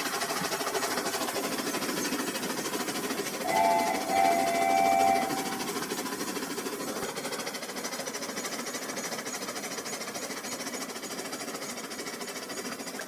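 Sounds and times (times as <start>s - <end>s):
toy train motor rattling: 0.0s - 13.0s.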